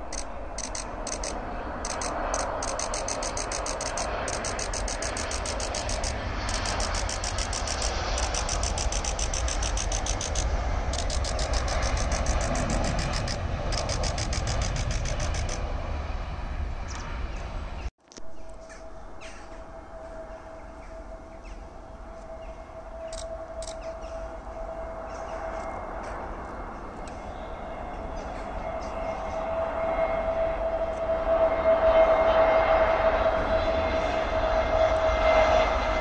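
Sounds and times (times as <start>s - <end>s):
wind buffeting microphone: 0.0s - 18.5s
distant aircraft engine rumble: 0.0s - 36.0s.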